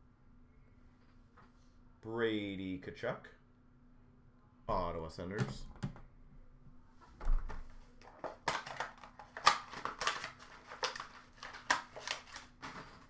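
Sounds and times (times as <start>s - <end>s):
plastic packaging crinkling: 8.0s - 13.0s.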